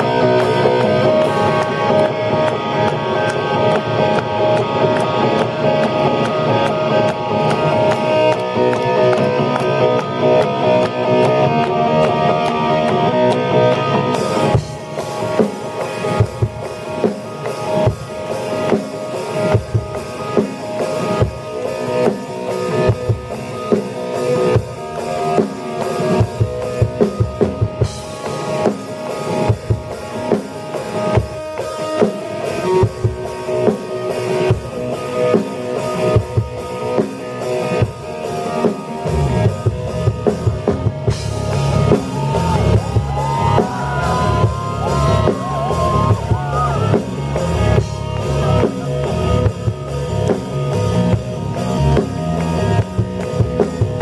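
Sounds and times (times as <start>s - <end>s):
electric guitar: 0.0s - 54.0s
drum kit kick and cymbals: 14.2s - 54.0s
electric bass: 32.6s - 54.0s.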